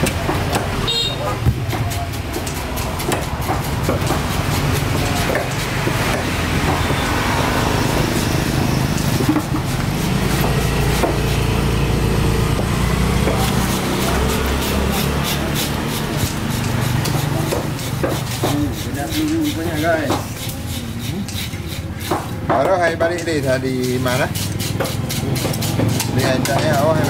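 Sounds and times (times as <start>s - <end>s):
knife scraping on wooden block: 0.1s - 11.8s, 12.6s - 27.0s
engine running: 3.4s - 17.2s.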